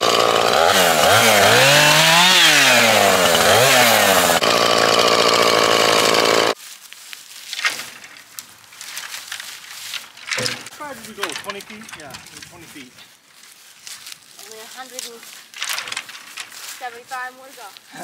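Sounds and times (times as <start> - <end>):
chainsaw revving: 0.0 - 6.6.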